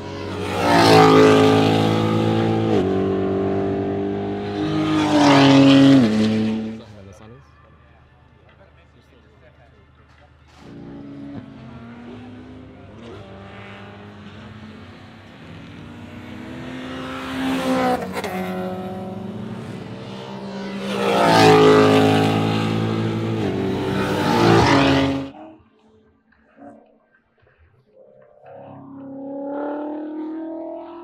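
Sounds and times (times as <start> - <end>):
race car engine passing: 0.0 - 7.1, 10.5 - 25.5, 28.4 - 31.0.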